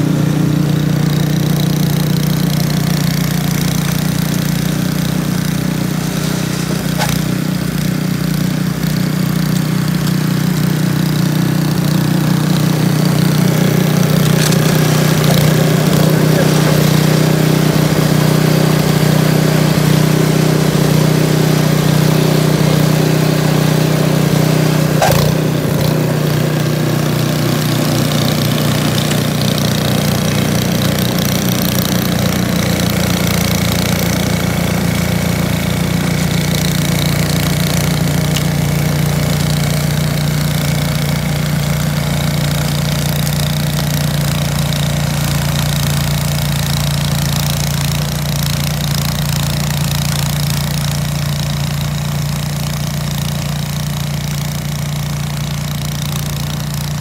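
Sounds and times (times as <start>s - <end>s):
snow blower engine running: 0.0s - 57.0s.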